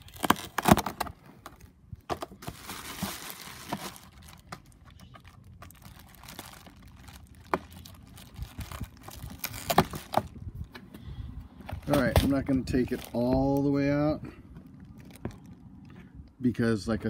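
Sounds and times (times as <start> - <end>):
plastic cover pried open: 0.0 - 10.4
plastic sheet crinkling: 2.4 - 10.4.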